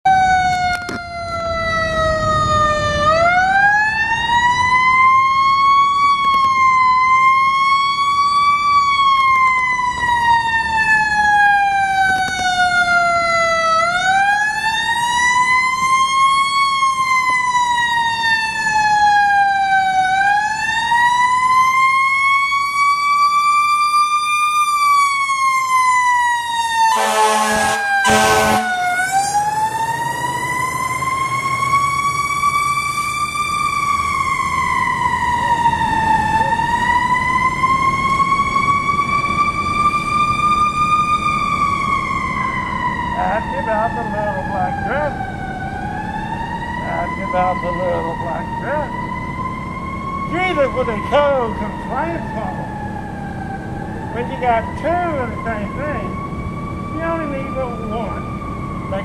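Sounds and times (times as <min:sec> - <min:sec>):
fire truck siren wailing: 0:00.0 - 0:59.0
low horn blasts: 0:26.9 - 0:31.9.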